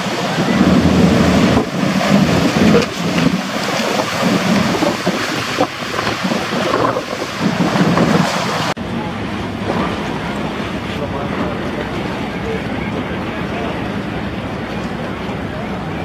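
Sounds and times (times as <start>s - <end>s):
wind buffeting microphone: 0.0s - 8.8s
jet ski engines running hard: 0.0s - 16.0s
water rushing and splashing: 0.0s - 16.0s.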